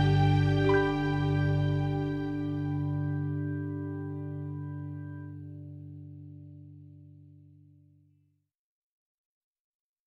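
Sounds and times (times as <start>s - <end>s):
pop song final chord: 0.0s - 5.2s.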